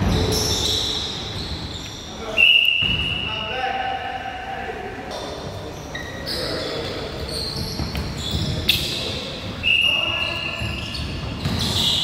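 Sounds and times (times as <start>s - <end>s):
sneaker squeaks: 0.0s - 3.5s, 5.1s - 12.0s
voices echoing: 0.0s - 12.0s
basketball bouncing on wooden floor: 10.6s - 11.8s.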